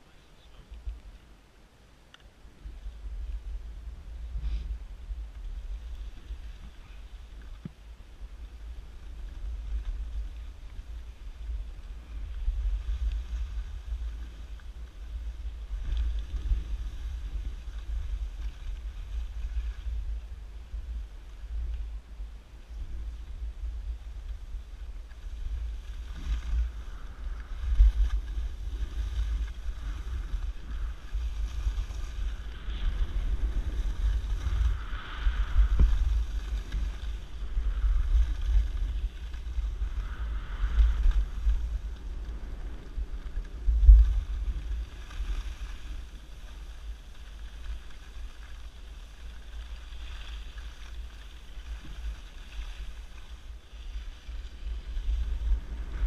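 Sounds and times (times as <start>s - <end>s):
skis sliding on packed snow: 2.4s - 56.0s
wind buffeting microphone: 2.4s - 56.0s.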